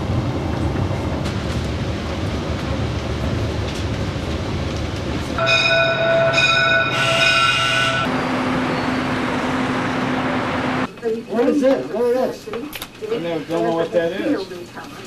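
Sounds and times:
train coach rumbling: 0.0 - 10.9
locomotive horn: 5.4 - 9.3.

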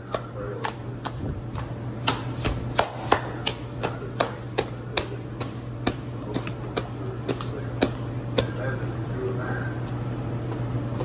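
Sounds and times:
dough being slapped by hand: 0.0 - 8.6
steady low hum: 0.0 - 11.0.

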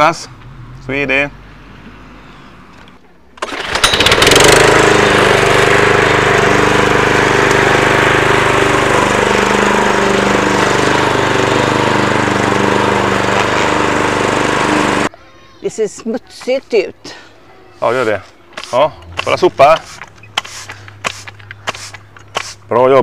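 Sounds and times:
lawn mower running: 3.4 - 15.1.

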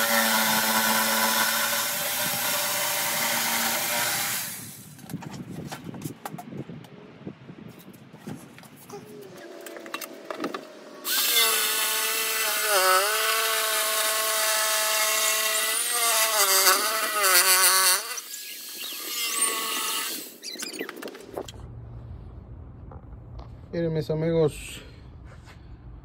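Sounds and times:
electric jigsaw cutting board: 0.0 - 4.7, 11.0 - 20.3.

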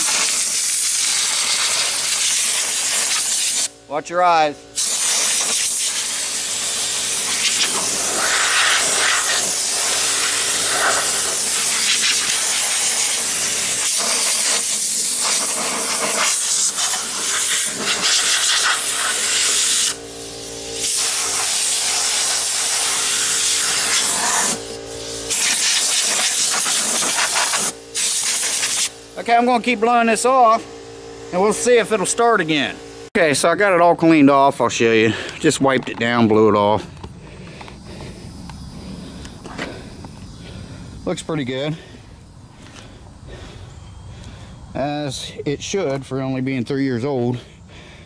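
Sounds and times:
compressed air hissing from blow gun: 0.0 - 3.8, 4.8 - 30.6
air compressor humming: 0.0 - 48.0.

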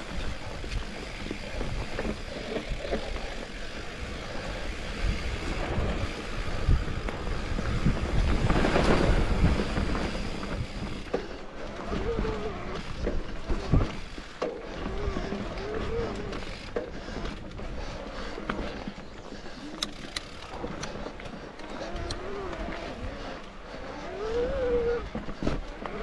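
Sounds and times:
wind rumble on microphone: 0.0 - 14.1, 20.5 - 26.0
bike rattling over bumps: 0.0 - 26.0
bike tyres rolling on dirt: 0.0 - 26.0.

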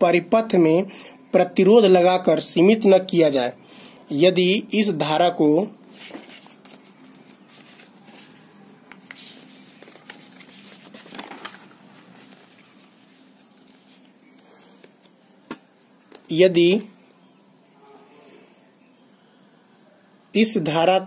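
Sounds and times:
paper rustling: 5.9 - 16.3.

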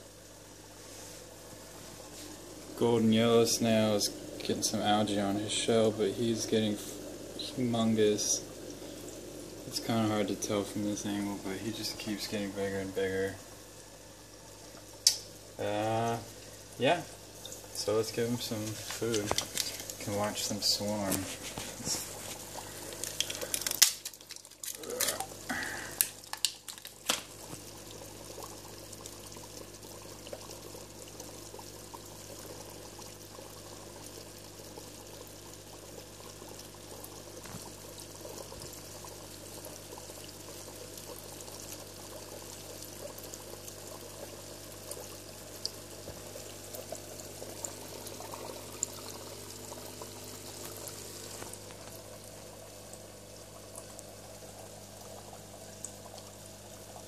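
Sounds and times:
aquarium water trickling: 0.0 - 57.0
faint steady hum: 0.0 - 57.0
plastic clicks and crackles: 23.0 - 25.3, 26.0 - 27.3.

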